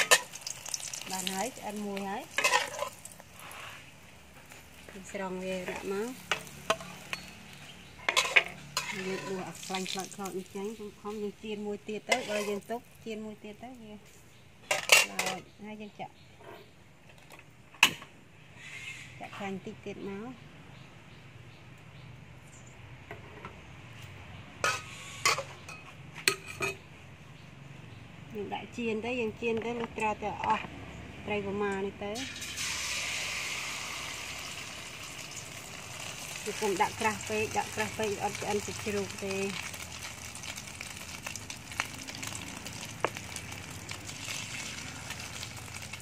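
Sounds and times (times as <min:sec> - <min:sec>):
metal utensils clinking: 0:00.0 - 0:00.4, 0:02.4 - 0:03.0, 0:08.0 - 0:09.8, 0:14.7 - 0:15.4, 0:24.6 - 0:26.8
omelette sizzling in oil: 0:00.0 - 0:11.1, 0:12.0 - 0:13.0, 0:32.2 - 0:46.0.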